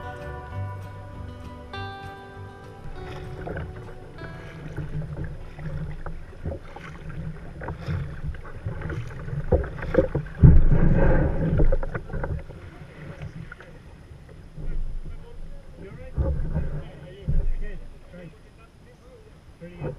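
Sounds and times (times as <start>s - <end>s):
kayak paddle splashing: 0.0s - 19.9s
wind rumble on microphone: 2.8s - 18.6s
water sloshing against hull: 2.8s - 19.9s.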